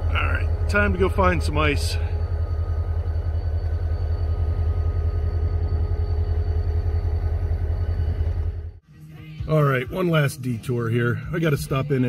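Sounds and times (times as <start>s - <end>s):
faint steady hum: 0.0s - 8.8s
low engine rumble: 0.0s - 12.0s.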